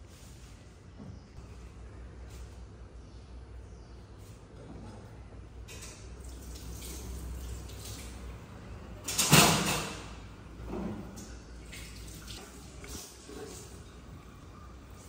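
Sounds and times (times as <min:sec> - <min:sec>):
water splashing in a sink: 0:05.7 - 0:08.4, 0:11.0 - 0:14.2.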